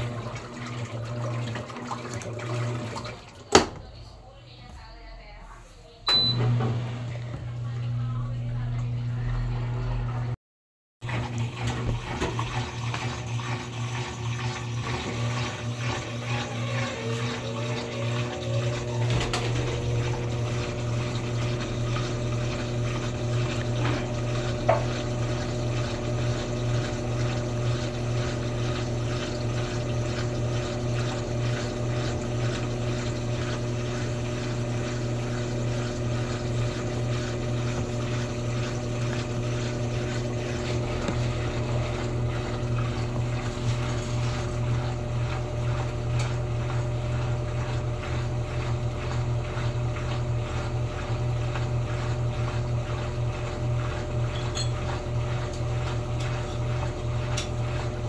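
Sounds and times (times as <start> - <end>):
faint water sloshing: 0.0 - 7.9
washing machine motor hum: 0.0 - 10.4, 11.0 - 58.0.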